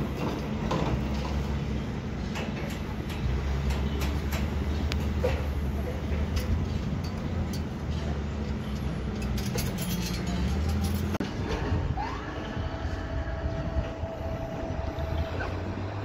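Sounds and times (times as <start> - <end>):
machinery hum: 0.0 - 16.0
light metallic clinks: 6.2 - 11.2
crane hoist motor whine: 11.2 - 16.0.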